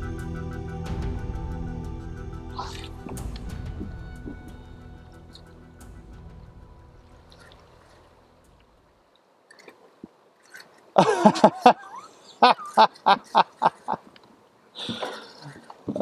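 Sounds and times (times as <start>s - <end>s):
person laughing rhythmically: 11.0s - 14.1s.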